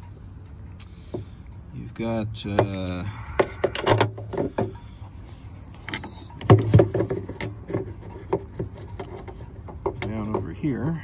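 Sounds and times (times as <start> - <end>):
plastic clicks knocks and rubbing: 5.8 - 10.6.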